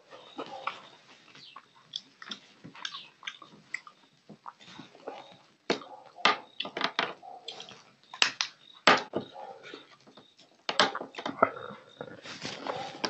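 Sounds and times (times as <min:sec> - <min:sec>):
man chewing and sucking: 0:00.2 - 0:05.6.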